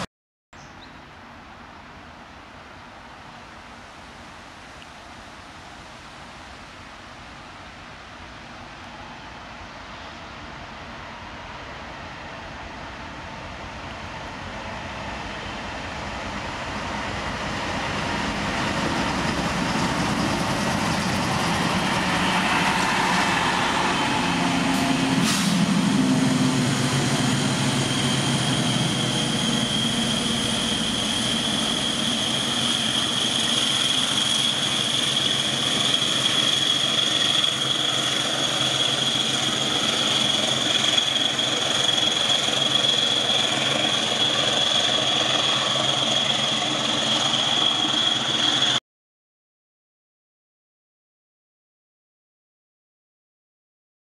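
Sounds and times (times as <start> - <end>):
diesel locomotive engine running: 12.0 - 48.8
high-pitched whine: 19.8 - 48.8.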